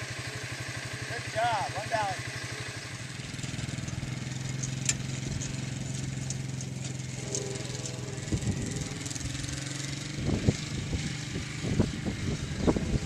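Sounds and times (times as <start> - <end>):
atv engine running: 0.0 - 13.0
low thumps and rumbles: 3.9 - 13.0.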